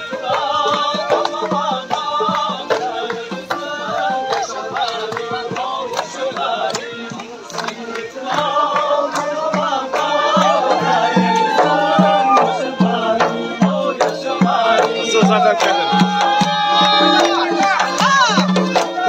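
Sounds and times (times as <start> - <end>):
frame drums beating: 0.0 - 19.0.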